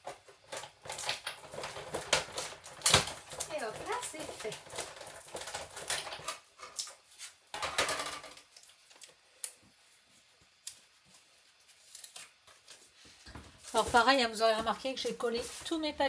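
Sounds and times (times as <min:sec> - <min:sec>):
paper rustling: 0:10.5 - 0:16.0.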